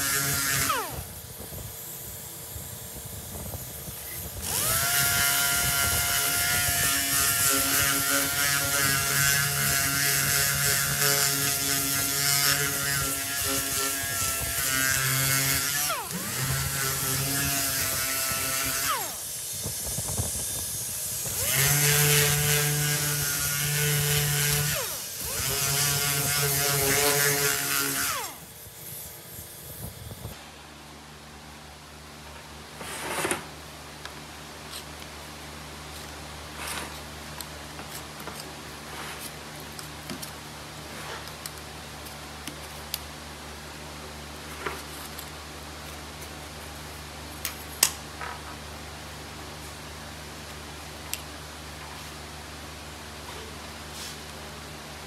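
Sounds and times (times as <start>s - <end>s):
power sander whining: 0.0s - 1.2s, 3.8s - 28.5s.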